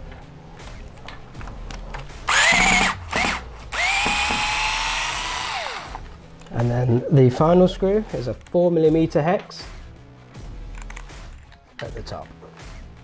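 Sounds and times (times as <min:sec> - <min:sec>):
electric screwdriver motor whining: 0:02.3 - 0:06.0.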